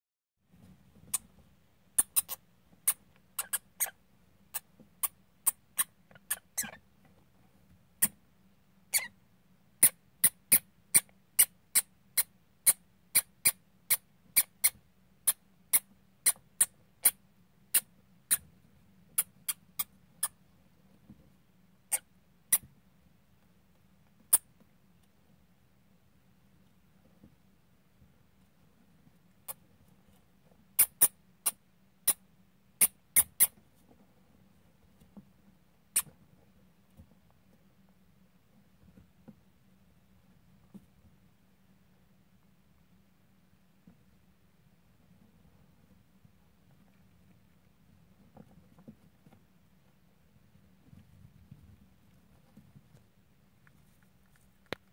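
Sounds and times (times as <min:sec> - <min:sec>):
hamsters squeaking: 0:02.0 - 0:06.9, 0:08.9 - 0:09.2, 0:09.8 - 0:18.5, 0:19.1 - 0:20.4, 0:21.9 - 0:22.7, 0:24.3 - 0:24.5, 0:30.8 - 0:32.2, 0:32.8 - 0:33.6, 0:35.9 - 0:36.2.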